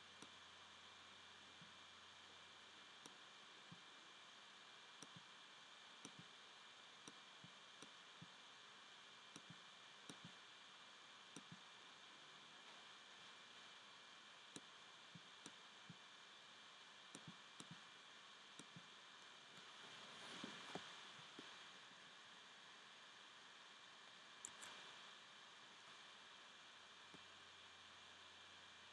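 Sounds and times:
computer mouse and keyboard clicks: 0:24.4 - 0:24.8.

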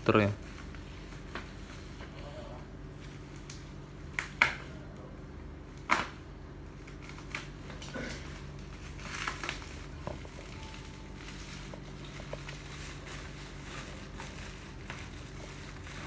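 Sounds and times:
plastic wrapping crinkling: 0:06.7 - 0:16.0.

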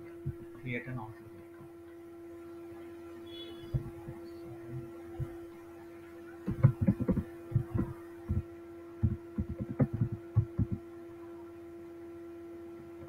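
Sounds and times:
electrical hum: 0:00.0 - 0:13.0
keyboard typing: 0:06.4 - 0:10.8.

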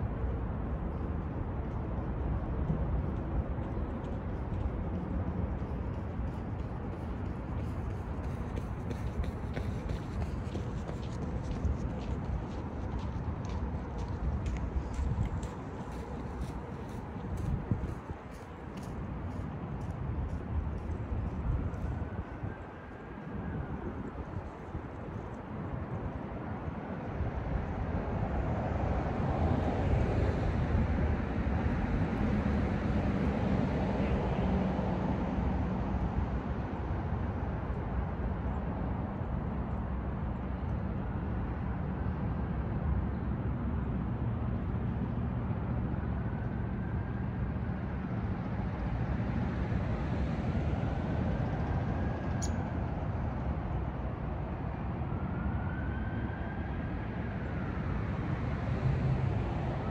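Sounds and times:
road traffic rumble: 0:00.0 - 0:59.9
distant siren wail: 0:54.6 - 0:59.9.

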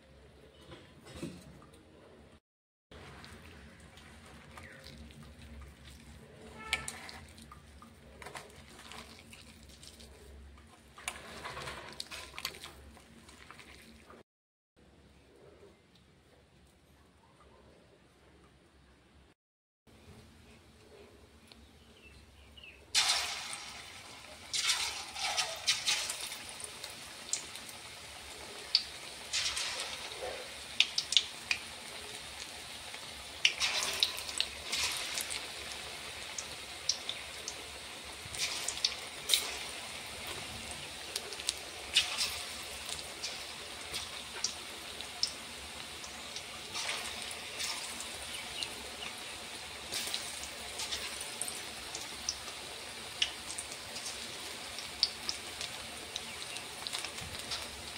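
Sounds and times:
hot oil sizzling: 0:22.8 - 0:57.9.

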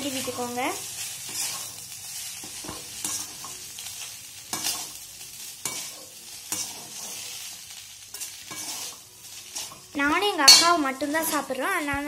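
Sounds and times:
food sizzling: 0:00.0 - 0:12.0
spatula scraping and knocking pan: 0:01.3 - 0:01.8, 0:02.4 - 0:03.6, 0:04.5 - 0:05.0, 0:05.6 - 0:07.3, 0:08.1 - 0:11.5.

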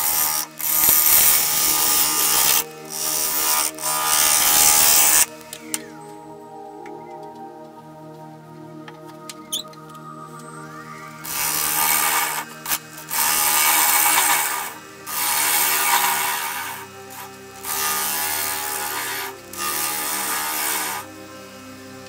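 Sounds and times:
wood lathe gouge scraping hiss: 0:00.0 - 0:05.4, 0:11.1 - 0:22.0.

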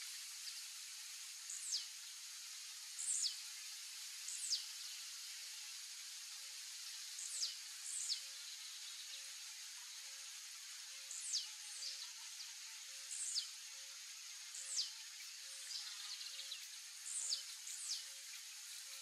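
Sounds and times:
steady high hiss: 0:00.0 - 0:19.0.

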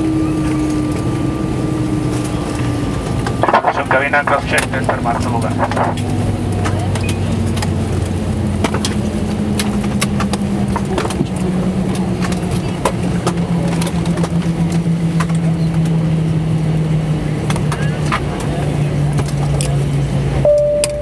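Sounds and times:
aircraft cabin drone: 0:00.0 - 0:21.0.

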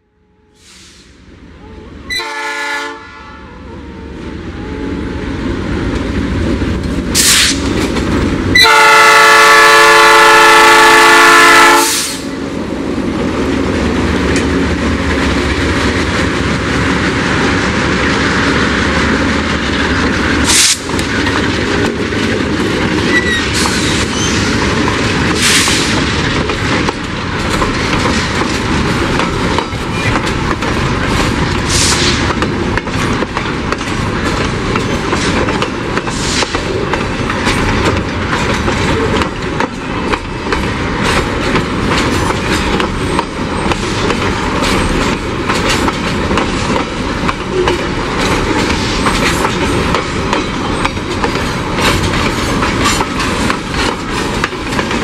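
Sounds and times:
locomotive air horn: 0:00.2 - 0:05.4, 0:08.5 - 0:12.3
diesel locomotive engines running: 0:00.5 - 0:55.0
freight wagons wheel clatter: 0:18.9 - 0:55.0.

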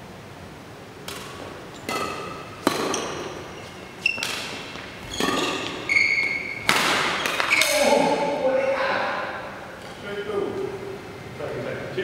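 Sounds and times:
badminton racket hitting shuttlecock: 0:01.0 - 0:07.8.

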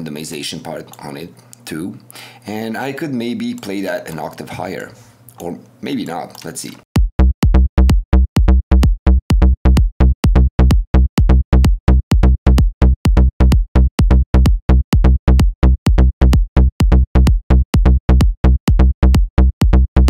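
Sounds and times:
synthesized plucky bass notes: 0:07.0 - 0:20.0.

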